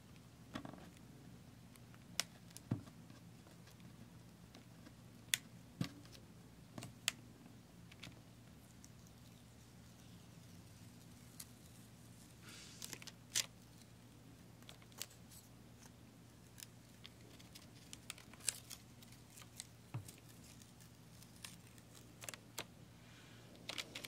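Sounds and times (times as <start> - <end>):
sticky film peeling crackles: 14.6 - 22.7.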